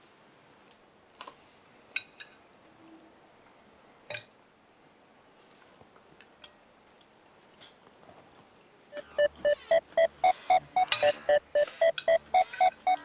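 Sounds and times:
music with repeating beat: 9.0 - 13.0.

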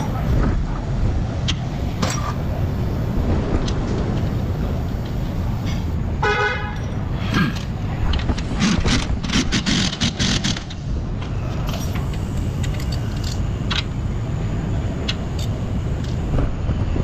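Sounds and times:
steady low rumble: 0.0 - 17.0
pneumatic impact wrench hammering: 8.4 - 10.8.

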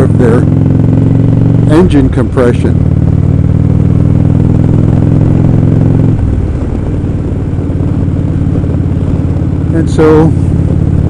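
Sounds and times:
motorcycle engine running: 0.0 - 11.0
wind rush: 4.1 - 11.0.

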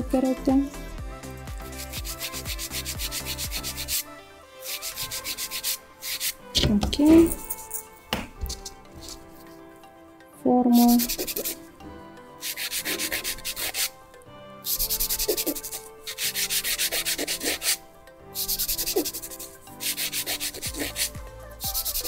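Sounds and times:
nail file rasping on a nail: 1.5 - 6.4, 8.5 - 9.2, 10.8 - 11.6, 12.4 - 14.0, 14.6 - 17.8, 18.4 - 22.0.

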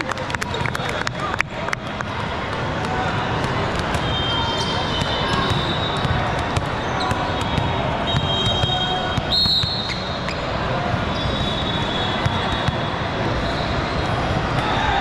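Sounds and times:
spectators in a hall: 0.0 - 15.0
sneakers squeaking on gym floor: 3.4 - 14.2.

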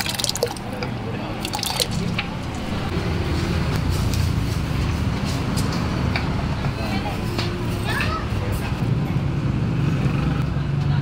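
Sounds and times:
wet squelching: 1.4 - 2.7
steady low rumble: 1.9 - 5.3.

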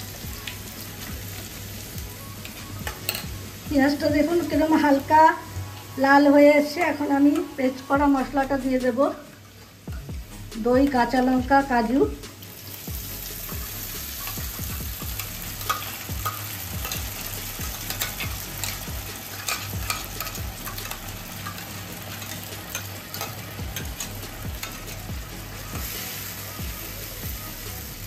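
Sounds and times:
paste sizzling in hot oil: 12.3 - 28.0
spatula stirring pan: 12.5 - 27.7.

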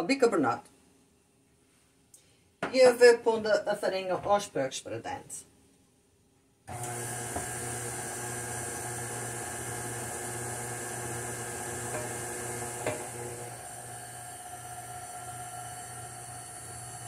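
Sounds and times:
stand mixer motor running: 6.7 - 17.0.

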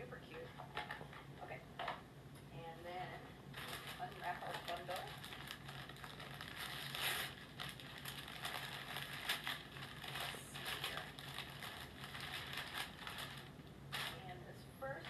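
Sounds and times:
paper wrapping rustling: 3.5 - 14.2.

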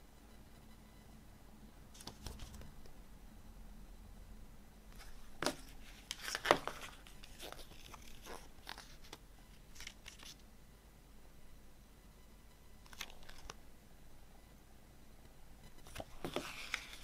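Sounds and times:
paper pages rustling: 2.0 - 2.6, 5.0 - 10.4, 12.9 - 13.6, 15.9 - 17.0.

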